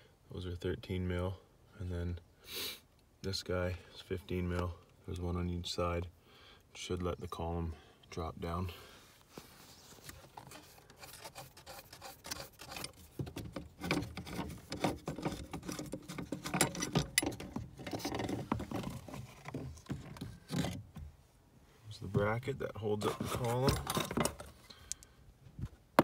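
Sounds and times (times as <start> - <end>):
rubbing and scraping: 9.2 - 21.2, 21.9 - 24.8
small metallic clicks: 23.6 - 25.1.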